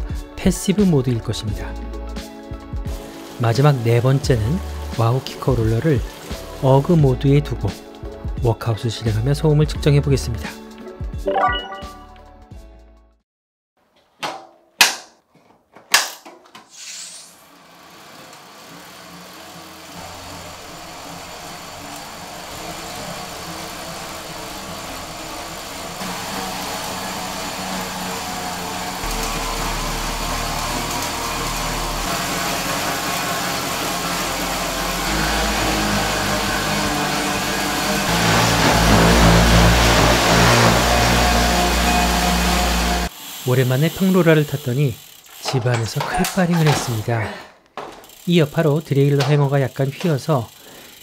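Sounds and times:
tyres whirring on rollers: 2.9 - 6.9, 17.5 - 47.0.

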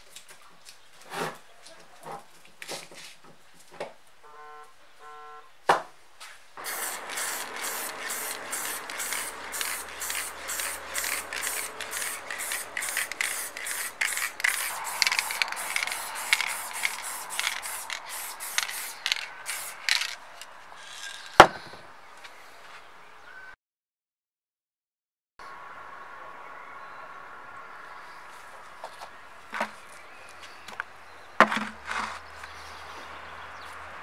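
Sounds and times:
spray paint can hissing: 6.6 - 21.3.

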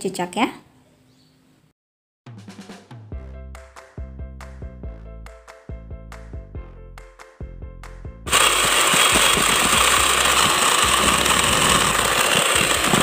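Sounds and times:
background music with drum beat: 2.3 - 8.3
electric mixer whipping: 8.3 - 13.0.

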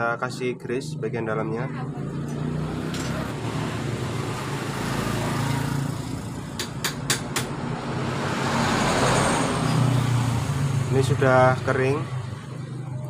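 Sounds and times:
engine hum: 0.4 - 13.0.

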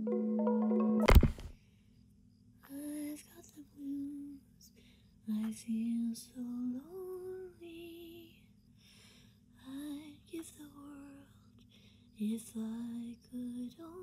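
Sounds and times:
woman singing slowly: 2.6 - 8.5, 9.6 - 11.4, 12.2 - 14.0.

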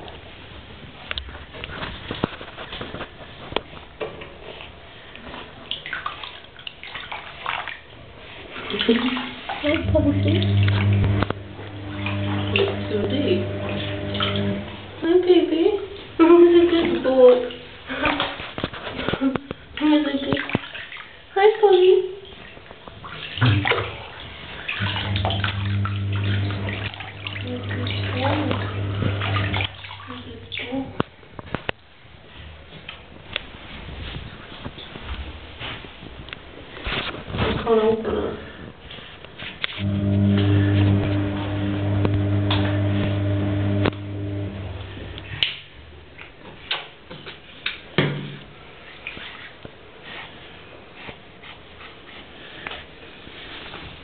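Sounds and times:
water splashing in a bathtub: 0.0 - 54.0
steady low hum: 9.8 - 15.0, 24.8 - 29.8, 39.8 - 45.4.

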